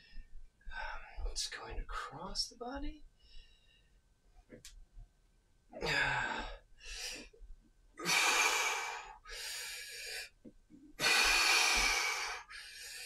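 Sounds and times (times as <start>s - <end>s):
man breathing hard: 5.8s - 7.4s, 8.0s - 10.3s, 11.0s - 13.0s.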